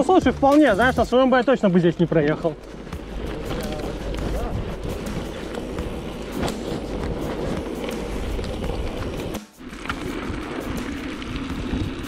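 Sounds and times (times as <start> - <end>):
bicycle rattling over dirt track: 0.0 - 12.0
wind buffeting camera: 2.6 - 12.0.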